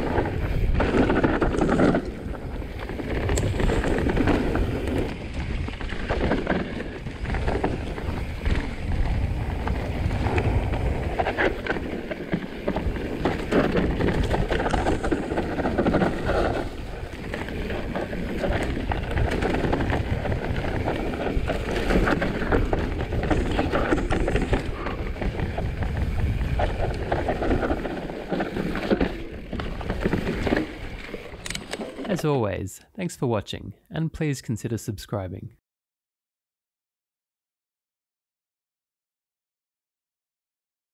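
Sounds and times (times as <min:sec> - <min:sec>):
wind buffeting microphone: 0:00.0 - 0:31.6
bike rattling over bumps: 0:00.0 - 0:32.2
bike tyres rolling over dirt: 0:00.0 - 0:32.4.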